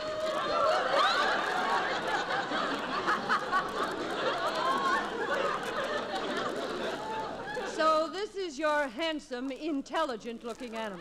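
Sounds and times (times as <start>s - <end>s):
audience laughing: 0.0s - 7.7s.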